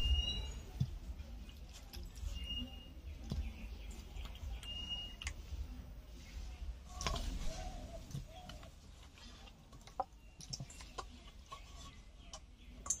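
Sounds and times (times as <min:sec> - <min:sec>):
bird chirps: 0:00.0 - 0:00.8, 0:02.2 - 0:05.3.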